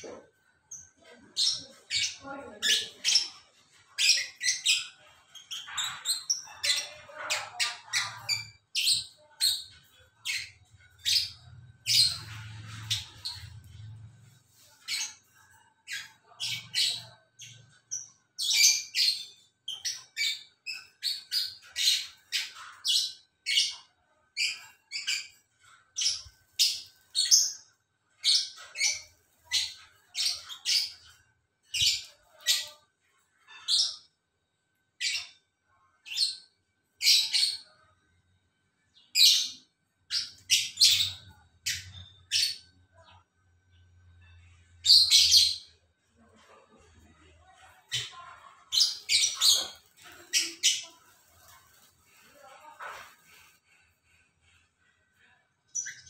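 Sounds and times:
lovebirds chirping: 39.0 - 56.0.

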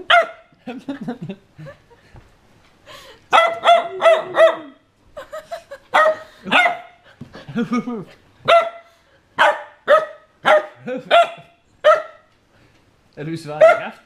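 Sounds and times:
puppy barking: 0.0 - 0.5, 3.3 - 4.8, 5.9 - 7.0, 8.4 - 12.3, 13.6 - 14.0.

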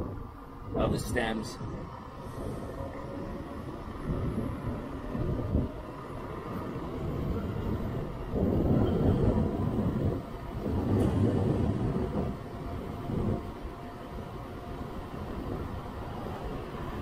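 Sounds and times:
wind and tyres on road: 0.0 - 17.0.

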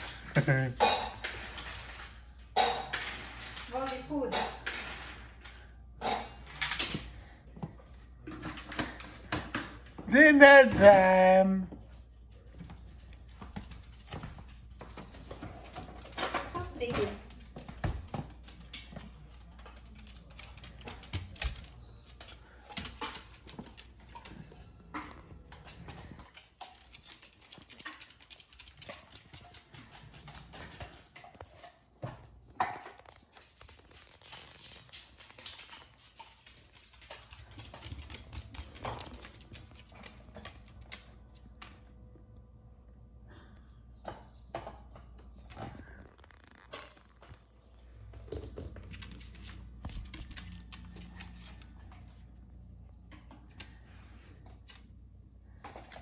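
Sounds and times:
dog claws on hardwood floor: 12.4 - 42.0, 44.1 - 56.0.

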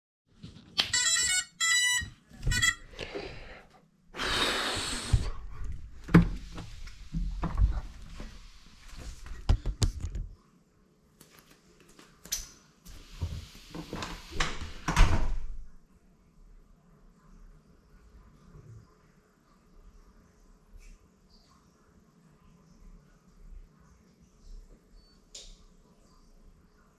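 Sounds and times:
drone electronic beeps: 0.9 - 2.8.

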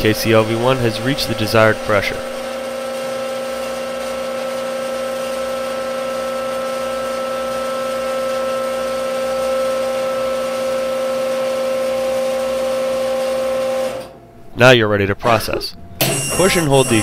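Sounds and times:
machine motor hum: 0.0 - 4.0, 15.8 - 17.0.

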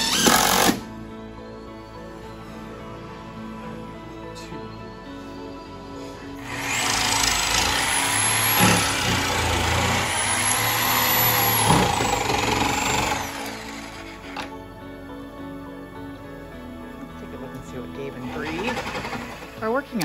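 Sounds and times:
jigsaw cutting wood: 0.0 - 0.9, 6.4 - 14.6, 18.2 - 19.6.

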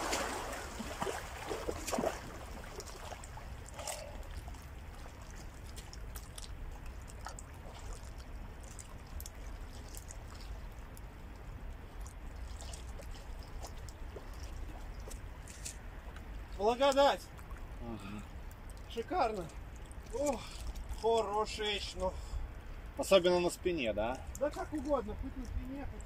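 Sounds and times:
water splashing and trickling: 0.0 - 26.0.

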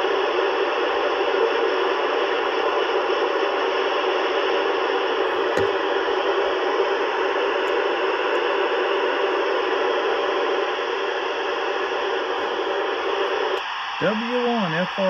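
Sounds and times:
radio static hiss: 0.0 - 15.0
light knock: 5.5 - 5.8.

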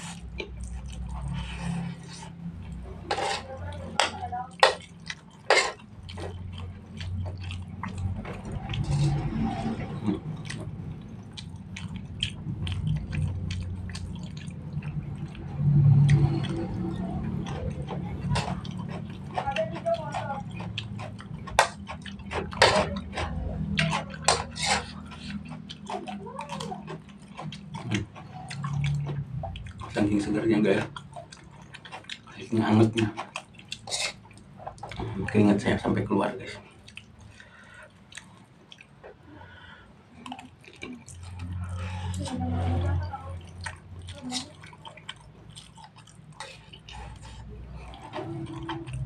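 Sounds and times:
wet mouth sounds: 0.0 - 35.6, 36.6 - 49.0
close-up chewing: 0.0 - 49.0
low steady hum: 0.0 - 49.0
metal spoon scraping a wok: 3.0 - 4.8, 5.5 - 5.8, 22.5 - 25.0, 33.8 - 34.2.

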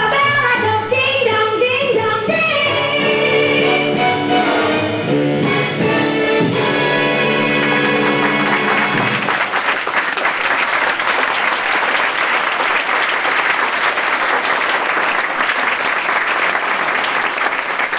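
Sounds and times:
audience applauding: 7.2 - 17.9.

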